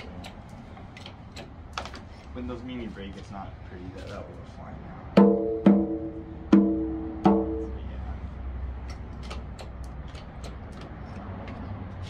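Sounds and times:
taiko drum hits: 5.2s - 7.8s.

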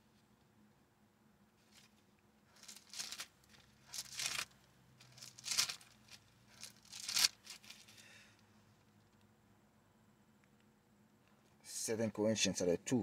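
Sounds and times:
pages turning: 1.6s - 8.2s.

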